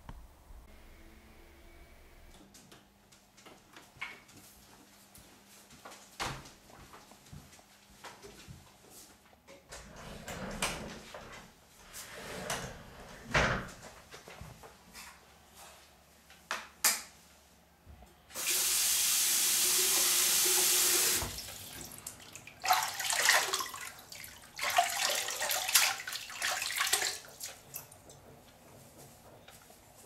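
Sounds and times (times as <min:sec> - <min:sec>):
tap water running into sink: 0:18.4 - 0:27.9
hands splashing water: 0:21.4 - 0:28.0.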